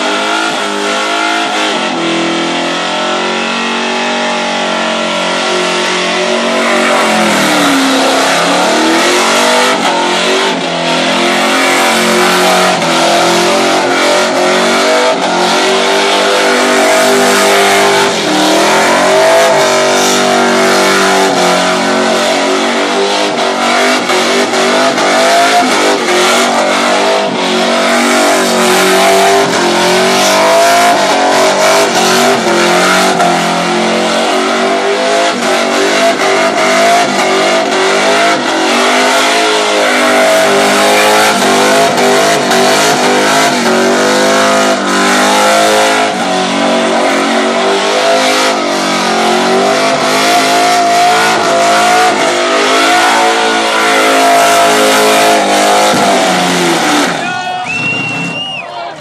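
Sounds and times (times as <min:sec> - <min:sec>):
car engine at high revs: 0:00.0 - 0:57.2.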